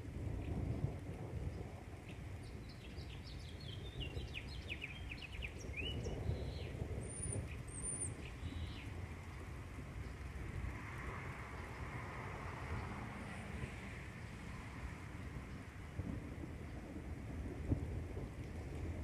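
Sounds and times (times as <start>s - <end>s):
distant thunder rumbling: 0.0s - 19.0s
small birds chirping: 2.0s - 8.9s.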